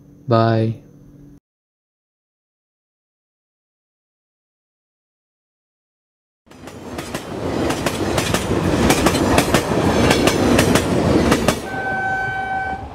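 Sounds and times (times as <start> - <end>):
wheels clacking over rail joints: 6.5 - 11.8
passing train rumbling: 6.5 - 12.9
train horn: 11.6 - 12.9.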